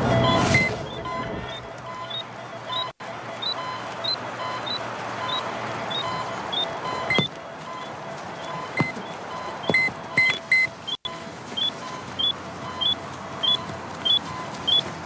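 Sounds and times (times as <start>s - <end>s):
electronic beeper chirping: 0.2s - 7.3s, 8.4s - 9.0s, 9.6s - 10.7s.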